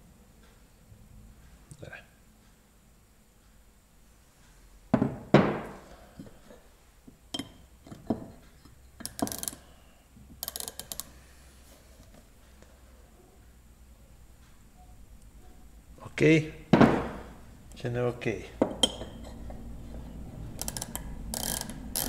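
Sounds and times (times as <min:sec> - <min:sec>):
micrometer ratchet clicks: 0:09.0 - 0:09.7, 0:10.4 - 0:11.2, 0:20.5 - 0:22.0.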